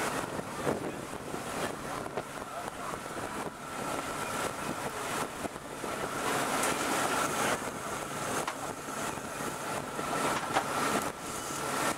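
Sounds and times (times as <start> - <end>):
motorboat engine drone: 0.0 - 11.9
wind and water rushing: 0.0 - 11.9.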